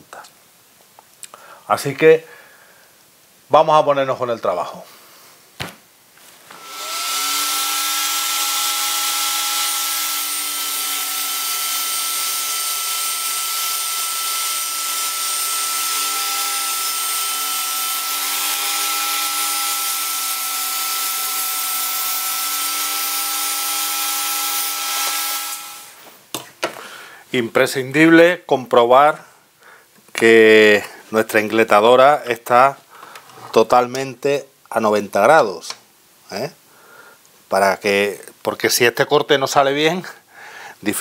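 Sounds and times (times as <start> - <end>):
table saw cutting board: 6.5 - 26.0.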